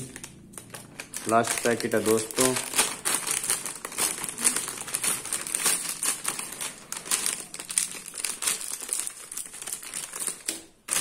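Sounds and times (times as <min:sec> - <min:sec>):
plastic snack packet crinkling: 0:00.0 - 0:11.0
scissors cutting plastic: 0:00.0 - 0:11.0.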